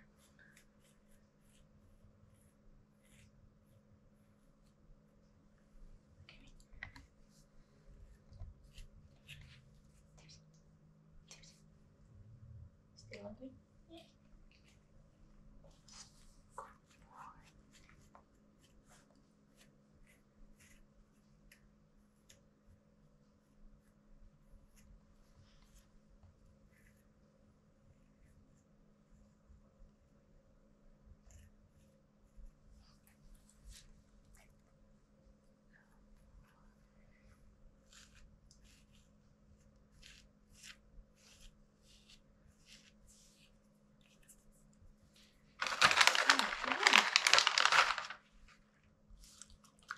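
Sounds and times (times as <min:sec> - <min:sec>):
comb rasping through dog fur: 0:37.7 - 0:44.7.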